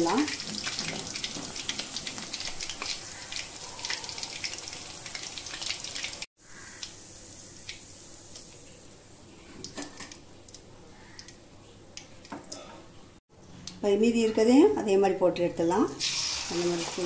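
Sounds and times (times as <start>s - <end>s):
hot oil sizzling and popping: 0.0s - 11.4s, 16.0s - 17.0s.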